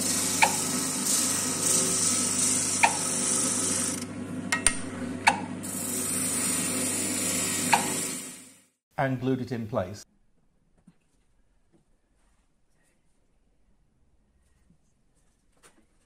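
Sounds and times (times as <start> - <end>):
wood sanding hiss: 0.0 - 4.0
sander motor hum: 0.0 - 8.6.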